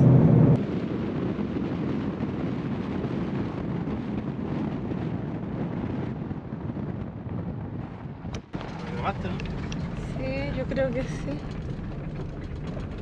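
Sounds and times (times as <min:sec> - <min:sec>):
van driving with road noise: 0:00.0 - 0:13.0.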